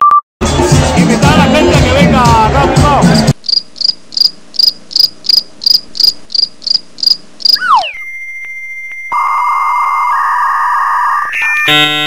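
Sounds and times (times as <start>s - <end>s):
cricket chirping: 3.4s - 7.6s
thin steady electronic tone: 3.4s - 12.0s
loud buzzy tone: 9.2s - 12.0s.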